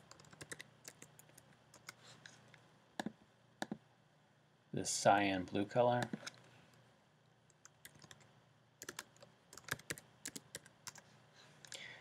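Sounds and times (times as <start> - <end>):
computer keyboard typing: 0.0 - 2.0, 7.6 - 11.0.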